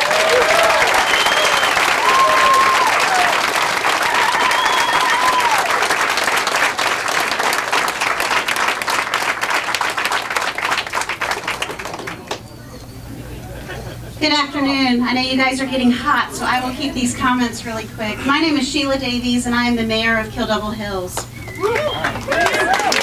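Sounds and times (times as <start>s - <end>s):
crowd applauding: 0.0s - 14.1s, 21.2s - 23.0s.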